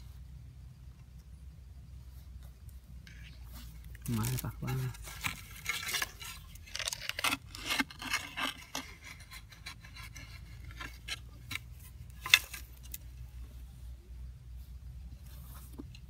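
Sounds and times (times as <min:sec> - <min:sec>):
metal tool scraping sandy soil: 0:03.0 - 0:13.0.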